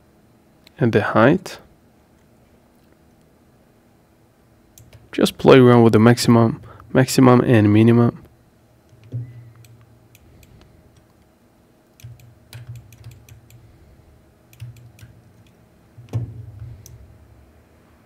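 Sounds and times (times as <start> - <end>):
computer mouse and keyboard clicks: 12.0 - 13.6, 14.5 - 16.2.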